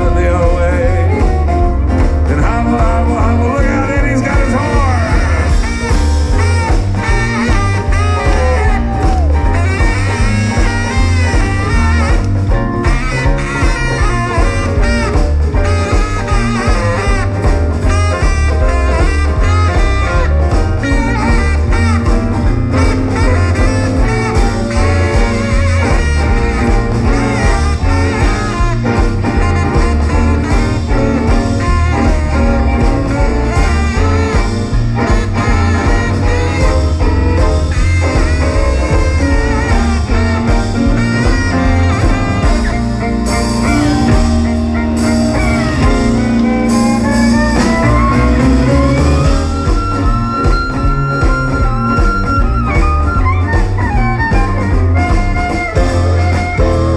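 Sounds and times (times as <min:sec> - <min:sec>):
bass and drums swinging beat: 0:00.0 - 0:56.9
saxophone soloing: 0:00.0 - 0:56.9.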